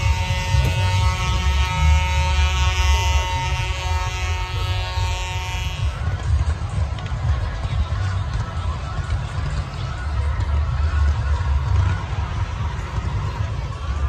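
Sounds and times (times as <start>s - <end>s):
heavy low rumble: 0.0s - 14.0s
loud buzzing drone: 0.0s - 14.0s.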